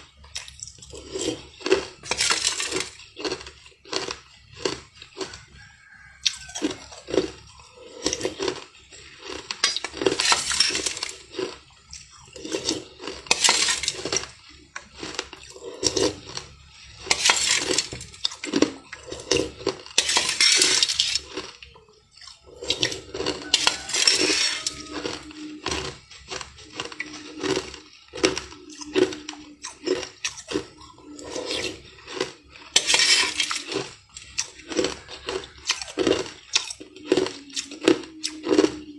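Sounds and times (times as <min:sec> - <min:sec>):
metal spoon scraping a pot: 0:00.0 - 0:05.4, 0:06.3 - 0:38.9
ice crunching: 0:00.0 - 0:38.9
slurping: 0:06.2 - 0:38.9.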